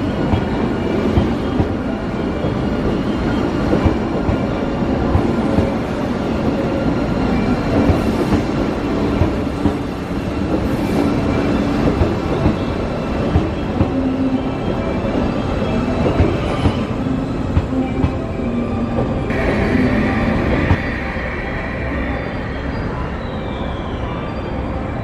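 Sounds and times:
electric train running past: 0.0 - 25.0
higher tone: 19.3 - 24.8.

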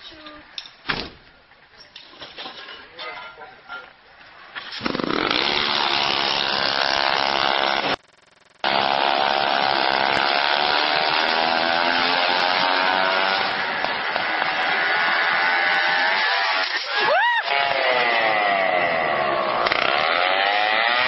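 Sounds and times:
moped engine revving: 4.8 - 16.8, 17.5 - 21.0.

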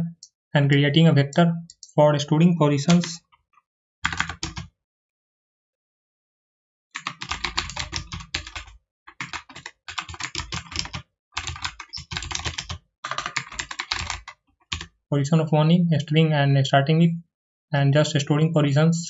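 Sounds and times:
keyboard typing: 2.8 - 3.4, 4.0 - 4.7, 7.0 - 14.9.

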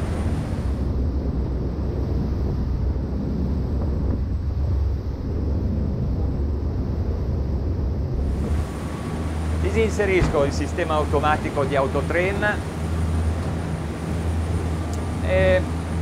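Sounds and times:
boat engines rumbling: 0.0 - 16.0
wind on microphone: 0.0 - 16.0.

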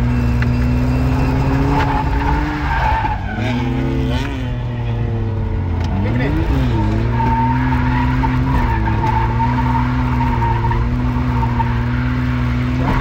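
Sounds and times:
car engine at high revs: 0.0 - 13.0.

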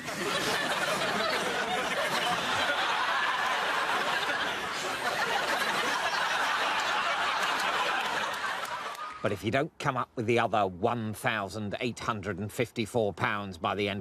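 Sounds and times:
group of people laughing: 0.0 - 9.3.

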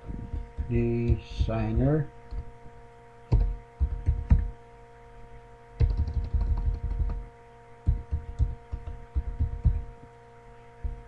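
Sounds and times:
faint electrical hum: 0.0 - 11.0
keyboard keystrokes: 5.8 - 7.2.

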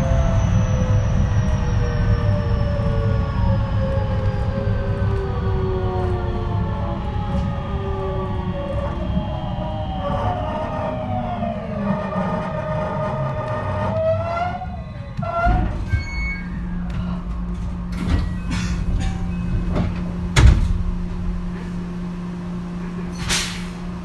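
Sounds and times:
electric train inverter whine: 0.0 - 24.0
low hum of standing train: 0.0 - 24.0
clunks and thud: 16.9 - 21.7.

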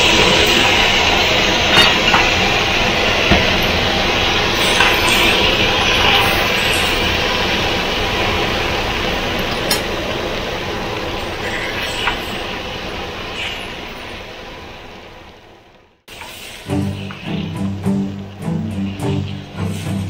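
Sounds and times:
noodles sizzling in a wok: 0.0 - 15.3, 16.1 - 20.0.

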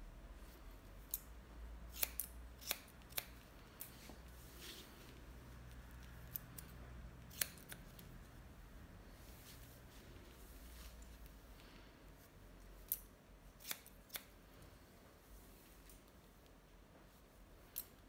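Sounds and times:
scissors snipping hair: 1.0 - 1.3, 1.9 - 4.0, 5.7 - 8.2, 12.8 - 14.4, 17.7 - 18.0.

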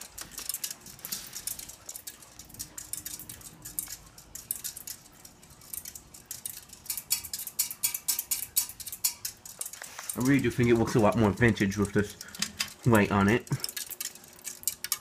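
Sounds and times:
ceiling fan motor hum: 0.0 - 15.0
fan rapid irregular clicking: 0.0 - 15.0.

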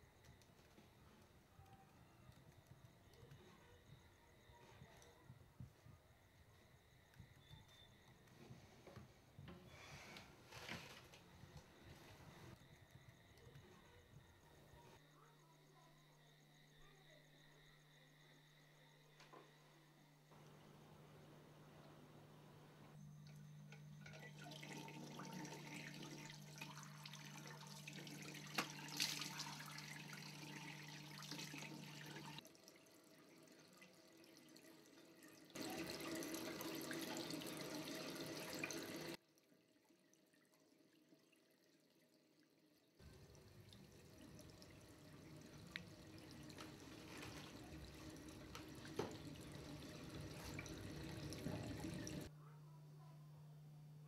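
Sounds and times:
tap water running into sink: 23.2 - 39.2, 43.0 - 52.3.

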